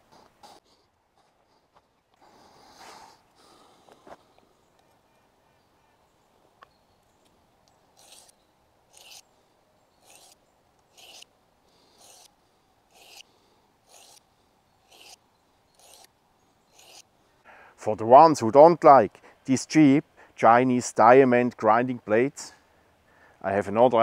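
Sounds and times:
knife rasping on sharpening plate: 0:12.9 - 0:13.2, 0:14.9 - 0:15.2, 0:15.8 - 0:16.1.

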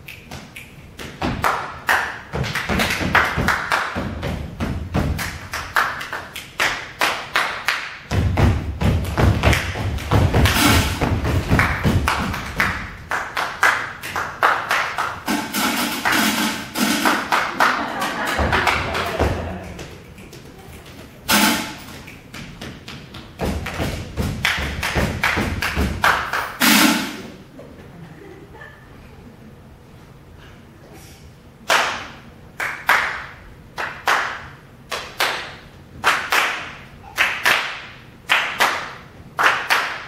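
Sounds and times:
stomping tapping and clapping: 0:00.1 - 0:27.2.

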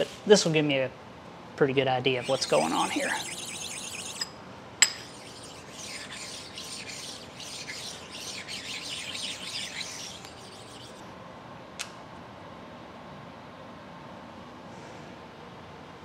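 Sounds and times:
steel blocks rubbing on metal: 0:02.2 - 0:11.0.

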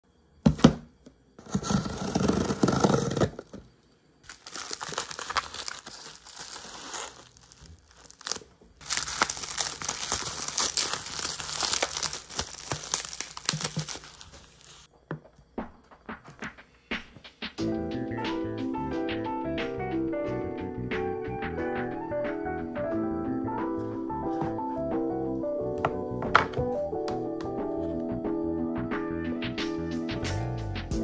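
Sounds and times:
bubble wrap crinkling and tearing: 0:01.4 - 0:03.6, 0:04.2 - 0:14.9
cardboard box being opened: 0:01.4 - 0:03.7, 0:04.3 - 0:14.9.

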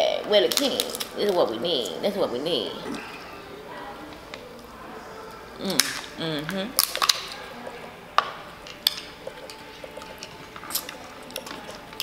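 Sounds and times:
shells cracking: 0:06.8 - 0:07.4.

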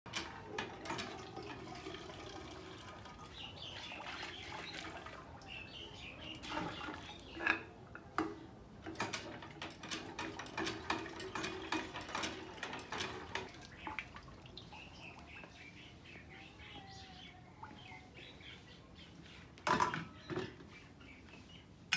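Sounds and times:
water splashing into metal pot: 0:00.1 - 0:05.6
metal knocks and clanks: 0:07.4 - 0:13.6.

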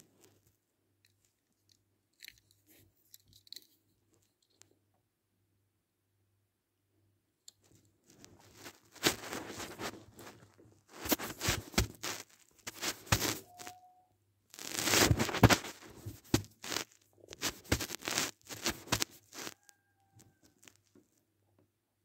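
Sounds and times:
cardboard and plastic tearing: 0:08.4 - 0:13.7, 0:14.6 - 0:19.6.

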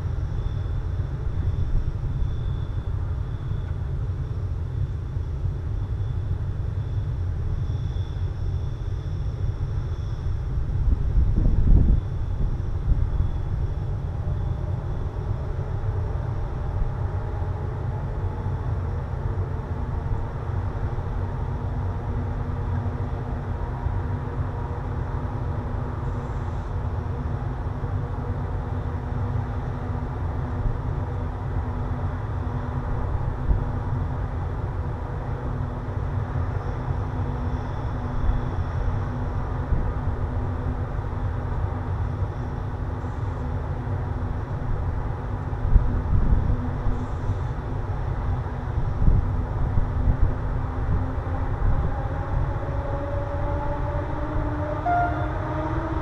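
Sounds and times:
wind buffeting microphone: 0:10.4 - 0:18.6, 0:44.4 - 0:56.0.

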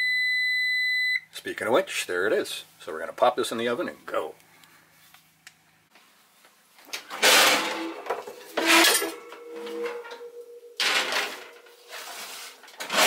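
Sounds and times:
oven door opening: 0:07.2 - 0:12.3
baking sheet scraping on oven rack: 0:07.2 - 0:13.0.

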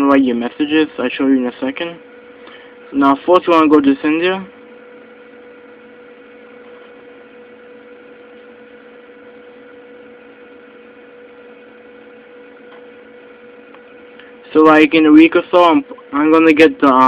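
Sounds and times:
electrical hum with hiss: 0:00.0 - 0:17.0.

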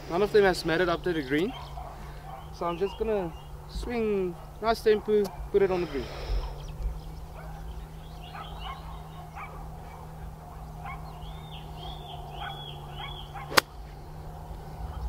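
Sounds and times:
birds calling: 0:00.0 - 0:15.0
golf club striking ball: 0:13.0 - 0:14.0.

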